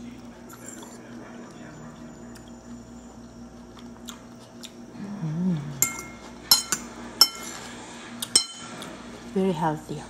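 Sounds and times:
person humming: 5.0 - 5.8
fork clinking against bowl: 8.3 - 8.7.

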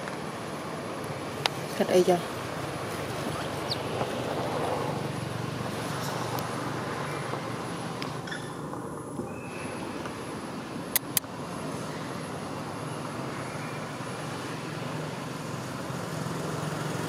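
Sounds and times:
motor vehicle rumbling: 0.0 - 17.0
sharp clicks: 10.9 - 11.3.

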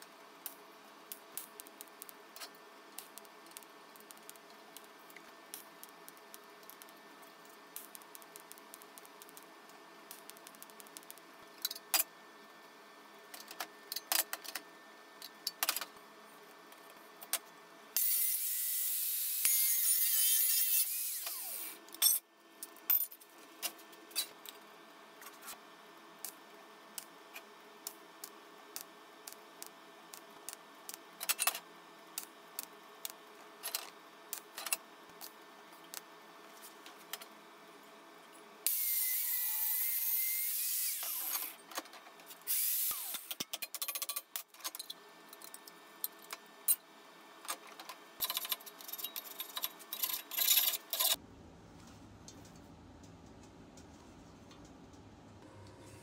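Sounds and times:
angle grinder cutting steel: 18.0 - 21.7
steel parts clinking and knocking: 48.2 - 51.2.

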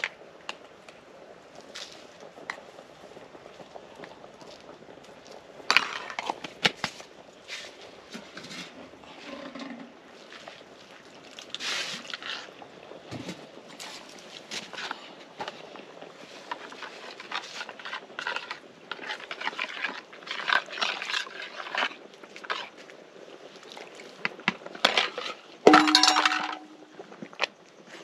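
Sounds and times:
rustling scrape: 5.7 - 10.6, 11.5 - 12.6, 16.2 - 22.8
metal spoon clinking on bowls: 25.7 - 26.8
dishes clattering: 25.7 - 26.9.

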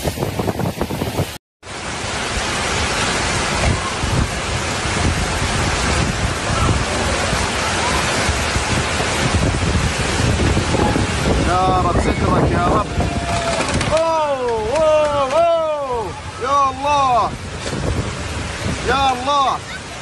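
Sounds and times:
floodwater rushing: 0.0 - 20.0
wind: 0.0 - 20.0
rain: 1.0 - 20.0.

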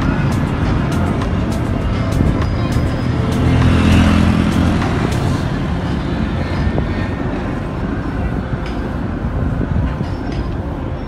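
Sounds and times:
vehicle engine running: 0.0 - 8.4
road and wind noise: 0.0 - 11.0.

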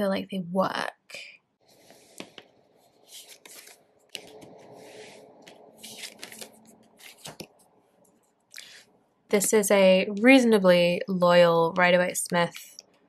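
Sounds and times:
cards sliding on wooden table: 1.8 - 7.5.

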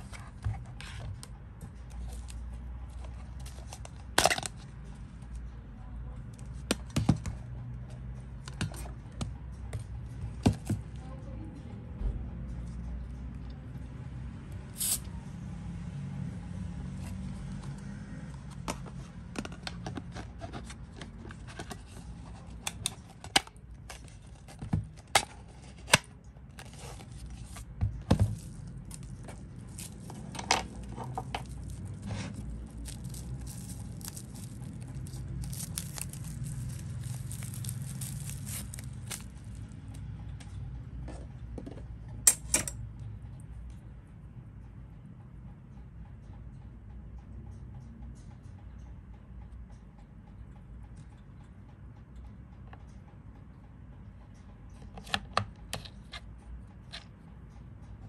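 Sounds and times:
hands handling hard plastic: 18.6 - 39.6.

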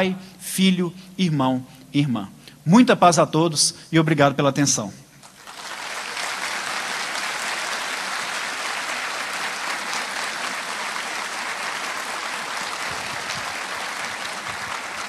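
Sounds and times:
audience applauding: 5.2 - 15.0.

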